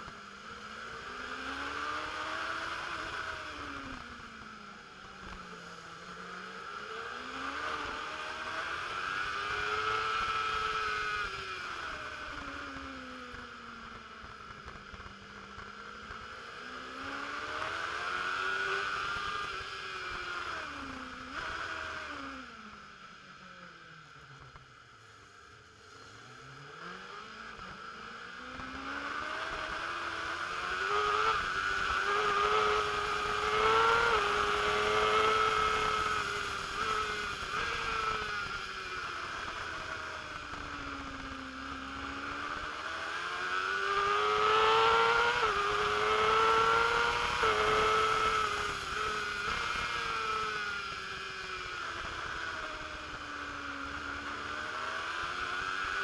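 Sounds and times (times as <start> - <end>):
race motorcycle engine accelerating: 0.0 - 56.0.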